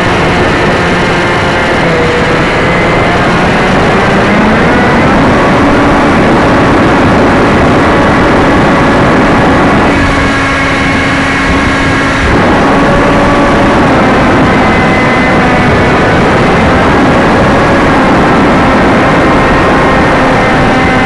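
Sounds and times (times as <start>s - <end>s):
electric motor and propeller humming: 0.0s - 21.0s
wind rush over microphone: 0.0s - 21.0s.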